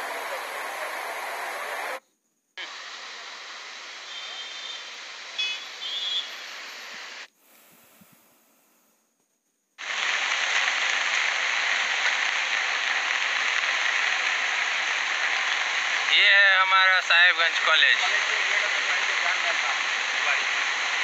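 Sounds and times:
floodwater rushing: 0.0 - 2.0, 9.8 - 21.0.

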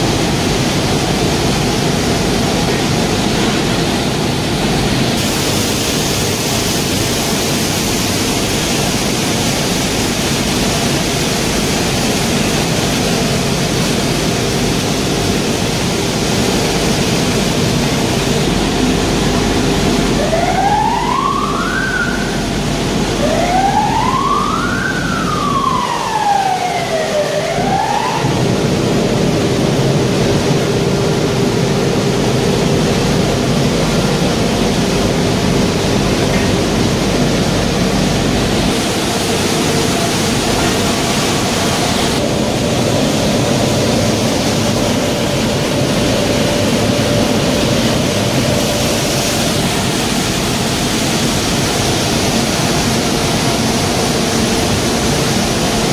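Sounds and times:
dense machine noise: 0.0 - 55.9
siren-like wailing tone: 20.1 - 28.8.

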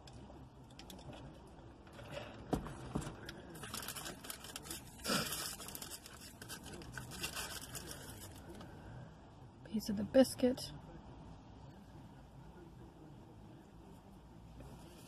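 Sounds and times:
food wrapper crinkling and tearing: 3.6 - 8.4.

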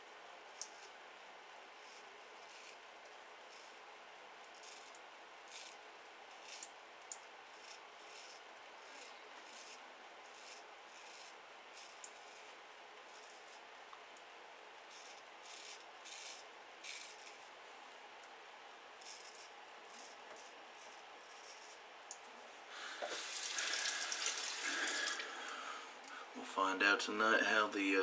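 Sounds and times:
razor scraping stubble: 1.8 - 2.8, 3.5 - 3.8, 4.5 - 6.7, 7.5 - 12.5, 13.1 - 13.6, 14.9 - 17.6, 19.0 - 21.8.

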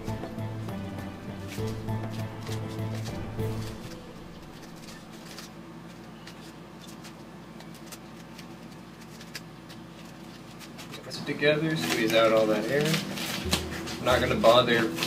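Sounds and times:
background music: 0.0 - 5.1, 11.6 - 15.0
foam clicks and rustles: 1.5 - 15.0.

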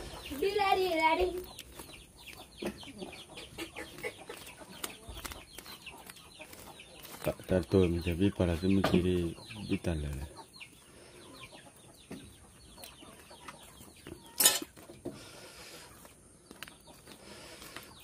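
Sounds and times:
fowl clucking: 2.2 - 4.9.

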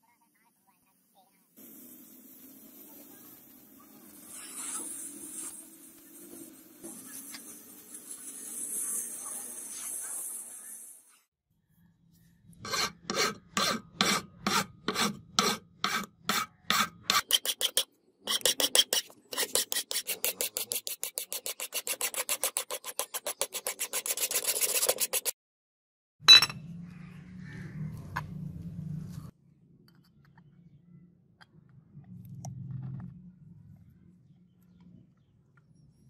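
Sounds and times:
hand file rasping on metal: 12.6 - 25.4.

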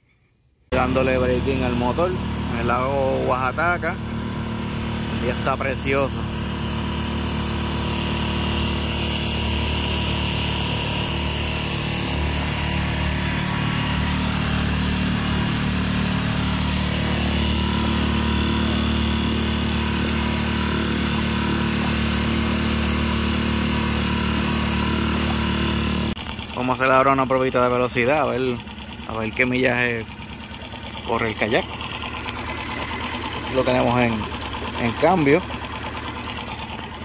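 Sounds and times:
outboard motor running: 0.7 - 37.0
water rushing: 8.6 - 26.2.

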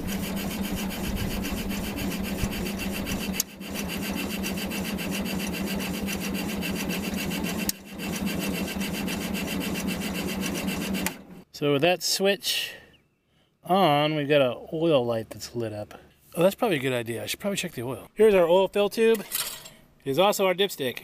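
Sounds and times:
tractor engine cranking: 0.0 - 11.4.

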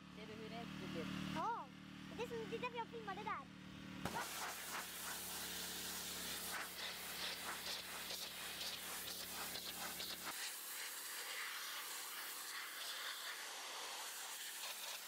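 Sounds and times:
pressure washer spraying concrete: 4.0 - 15.0.

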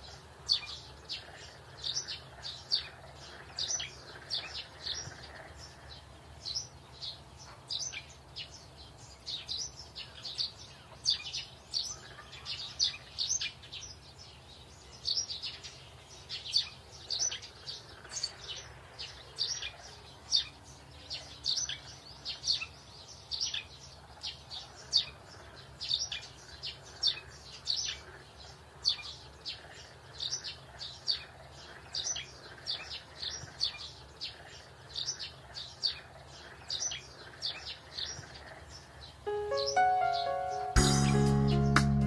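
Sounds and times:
small birds chirping: 0.0 - 42.0.

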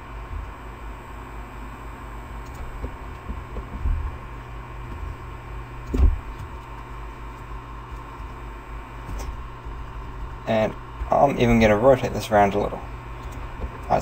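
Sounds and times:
low hum with hiss: 0.0 - 14.0
dull thumps: 2.6 - 11.2, 13.1 - 14.0.

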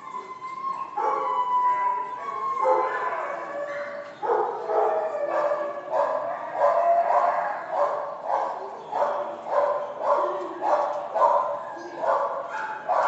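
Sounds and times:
dog howling calls: 0.0 - 13.0.

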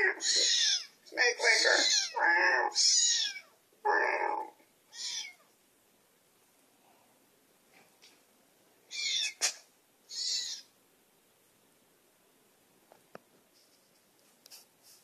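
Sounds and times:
kitten meowing from a speaker: 0.0 - 5.4, 8.9 - 9.5, 10.1 - 10.7.

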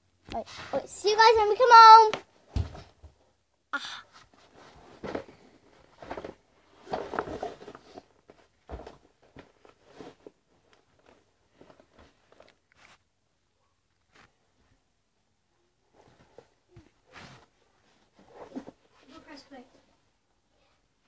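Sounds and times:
rustling: 4.1 - 13.1.

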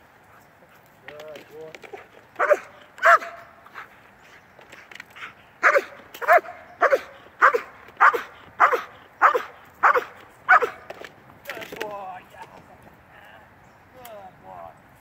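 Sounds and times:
dog barking: 2.4 - 3.5, 5.6 - 10.9.

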